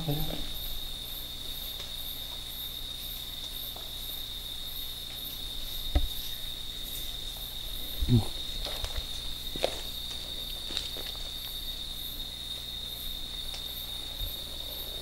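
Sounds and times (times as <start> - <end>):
crickets trilling: 0.0 - 15.0
pulsing insect call: 0.0 - 15.0
dull thumps: 5.9 - 6.3.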